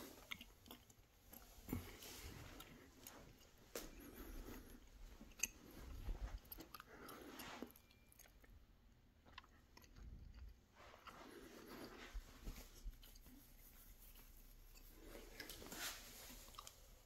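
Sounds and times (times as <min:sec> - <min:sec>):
soft footsteps: 0:01.3 - 0:06.8, 0:10.7 - 0:17.0.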